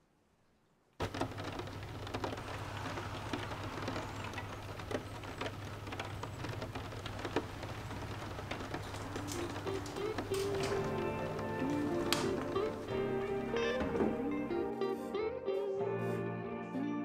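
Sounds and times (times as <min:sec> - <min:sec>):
steady rain falling: 0:01.0 - 0:14.8.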